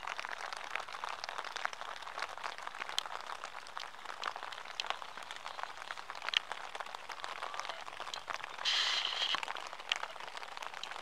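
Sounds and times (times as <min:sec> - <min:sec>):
short high peeps: 0:08.6 - 0:09.4.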